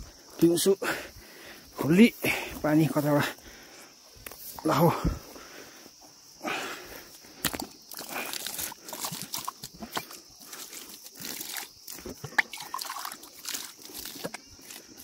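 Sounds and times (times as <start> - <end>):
water gushing into steel tumbler: 11.2 - 14.3
water splashing: 11.2 - 14.4.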